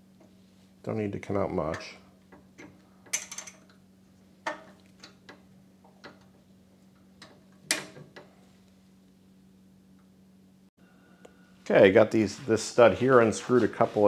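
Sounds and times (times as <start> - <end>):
faint steady hum: 0.0 - 13.6.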